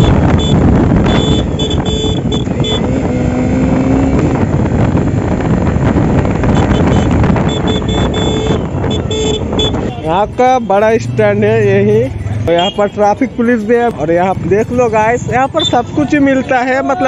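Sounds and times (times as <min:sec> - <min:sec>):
motorcycle engine running: 0:00.0 - 0:10.0
wind buffeting microphone: 0:00.0 - 0:10.6.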